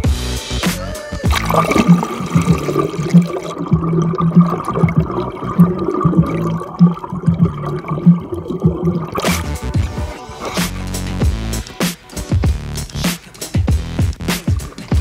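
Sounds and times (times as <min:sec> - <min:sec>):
muffled underwater sloshing and bubbling: 0:01.3 - 0:10.6.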